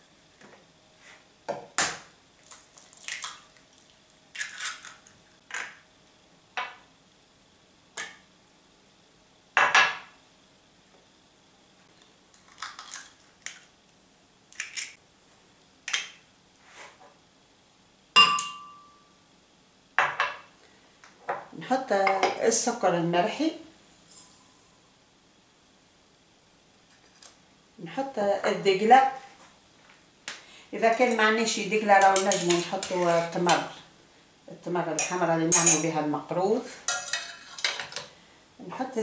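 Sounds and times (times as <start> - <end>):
glass and crockery clinking: 18.2 - 18.9.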